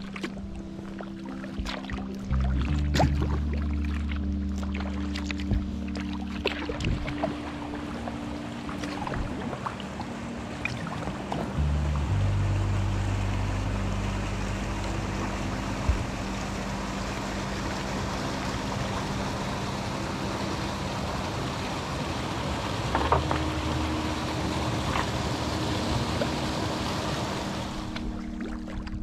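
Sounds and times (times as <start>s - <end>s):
calm background music: 0.0s - 29.0s
water hissing around kayak: 5.7s - 28.2s.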